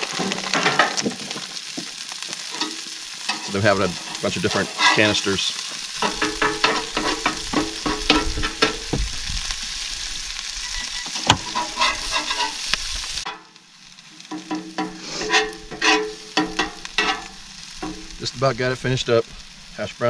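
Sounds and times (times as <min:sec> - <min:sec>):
food sizzling in a pan: 0:00.0 - 0:20.0
utensil scraping a pan: 0:02.5 - 0:08.9, 0:10.6 - 0:13.4, 0:14.2 - 0:18.2.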